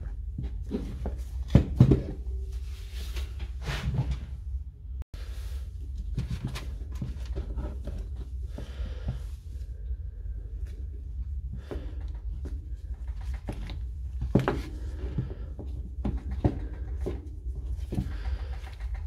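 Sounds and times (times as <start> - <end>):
steady low hum: 0.0 - 19.0
knocks and clicks of housing parts: 11.7 - 19.0.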